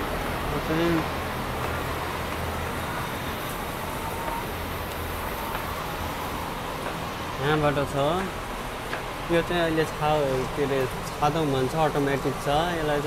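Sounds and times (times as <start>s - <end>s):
machinery and ventilation fans humming: 0.0s - 13.0s.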